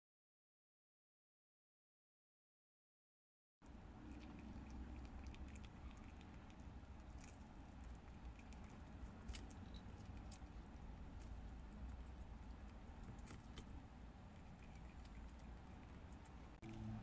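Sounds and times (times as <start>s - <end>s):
steady low hum: 3.6s - 17.0s
animal gnawing corn crunches: 4.0s - 17.0s.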